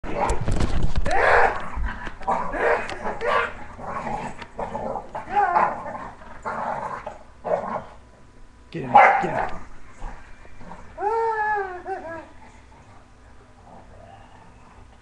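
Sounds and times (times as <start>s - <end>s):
dog growling and barking: 0.0s - 8.0s, 8.9s - 12.9s.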